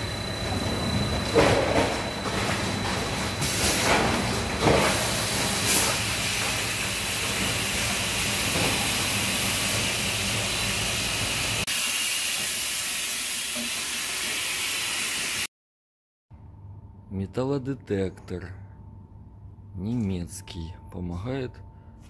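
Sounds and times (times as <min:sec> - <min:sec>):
low machine hum: 0:16.3 - 0:22.0.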